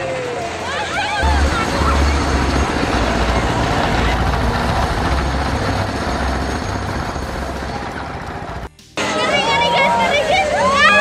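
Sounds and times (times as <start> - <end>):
noisy fairground background: 0.0 - 11.0
low mechanical rumble: 1.2 - 8.8.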